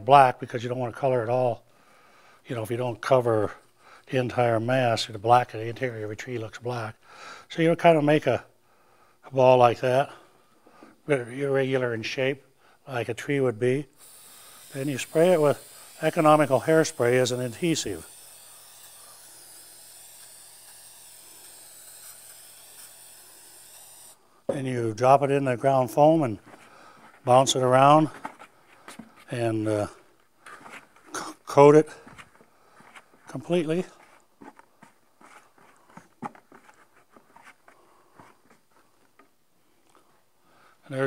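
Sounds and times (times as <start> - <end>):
aerosol can spraying: 14.0 - 24.2
rustling and scratching in foam: 33.8 - 37.7.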